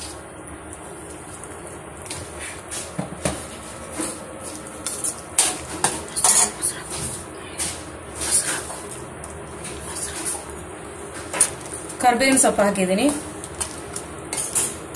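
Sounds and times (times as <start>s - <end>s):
metal spoon scraping a pan: 5.0s - 6.7s.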